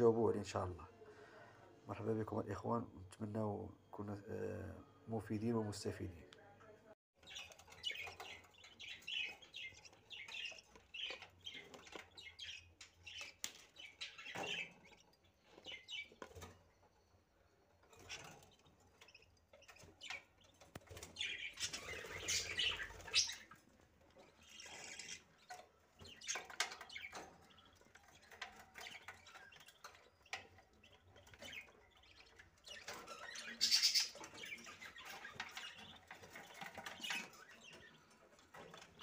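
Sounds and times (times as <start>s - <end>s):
budgerigars chirping: 7.2s - 16.5s, 17.9s - 39.0s.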